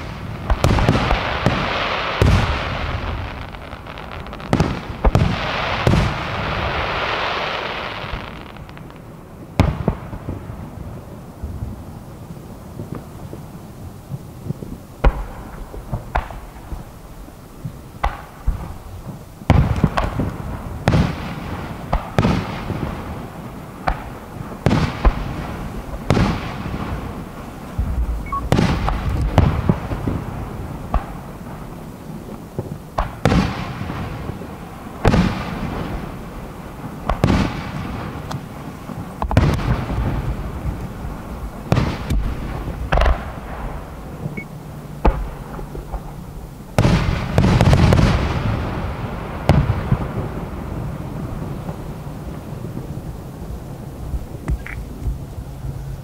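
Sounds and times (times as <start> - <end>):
firework shells bursting: 23.8 - 33.8.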